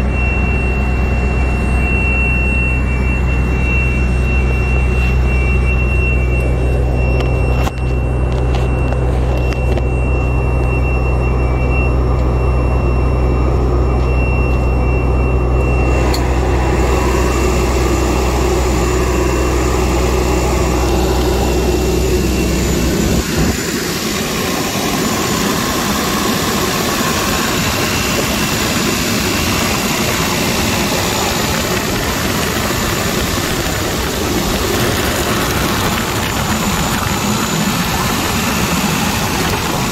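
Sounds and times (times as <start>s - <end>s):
diesel engine idling: 0.0s - 39.9s
steady rushing noise: 15.6s - 39.9s.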